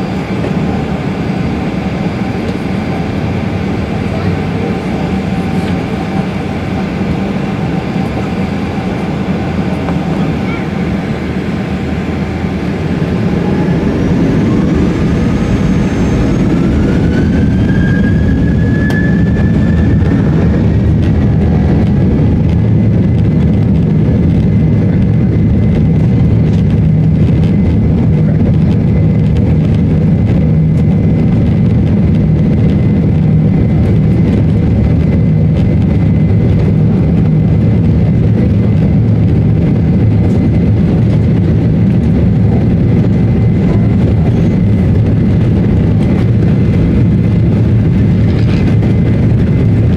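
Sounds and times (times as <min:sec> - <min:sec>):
jet engines spooling up: 0:00.0 - 0:49.9
low engine rumble in cabin: 0:00.0 - 0:49.9.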